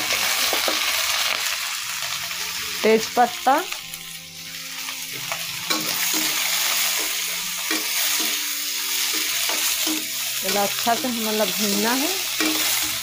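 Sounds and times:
vegetables sizzling in oil: 0.0 - 13.0
spoon scraping a pan: 4.4 - 11.3, 12.2 - 13.0.

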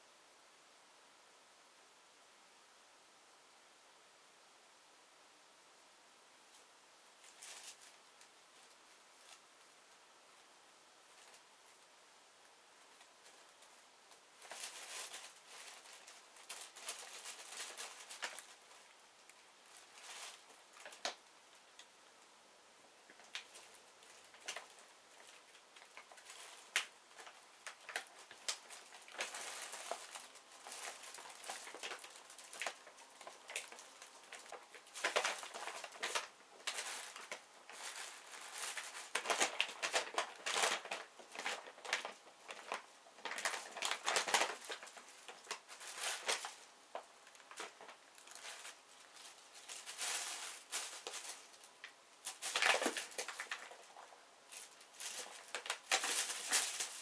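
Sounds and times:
plastic bag crinkling: 7.2 - 9.4, 13.0 - 21.9, 23.0 - 57.0.

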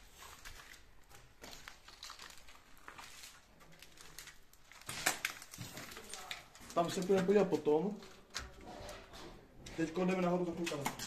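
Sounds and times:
crackles and clicks: 0.1 - 8.6.

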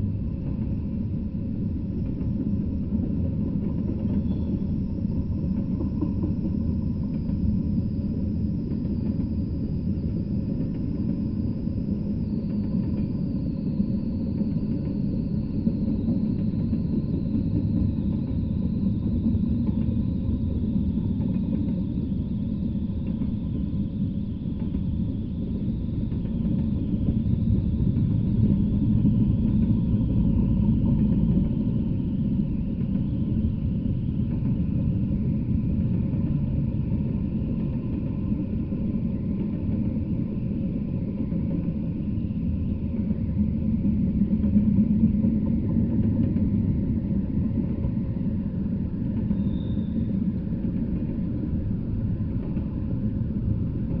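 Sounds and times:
train wheels rumbling on rail: 0.0 - 54.0.

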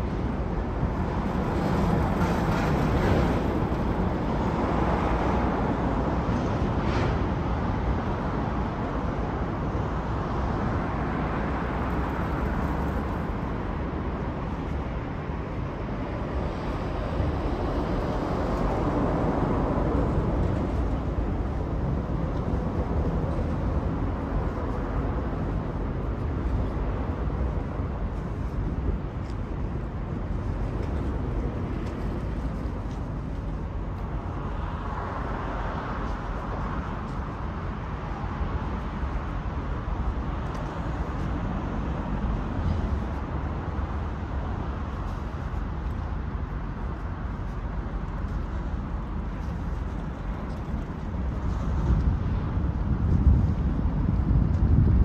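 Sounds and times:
distant road traffic rumble: 0.0 - 55.0.

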